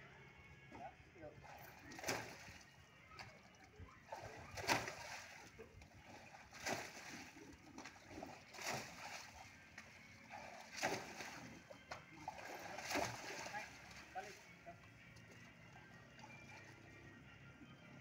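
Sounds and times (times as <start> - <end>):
water splashing: 1.4 - 14.6.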